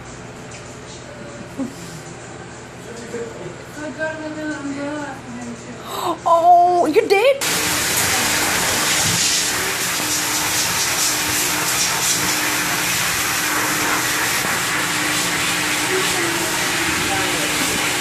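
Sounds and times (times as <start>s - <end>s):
faint motor hum: 0.0s - 18.0s
pet dryer blowing air: 7.4s - 18.0s.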